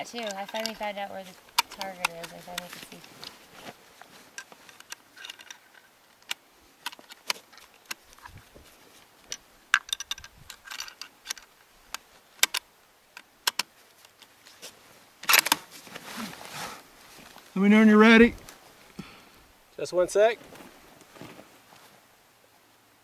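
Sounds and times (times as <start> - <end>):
rifle clicks and rattles: 0.1 - 3.4, 4.0 - 14.3, 15.2 - 15.7.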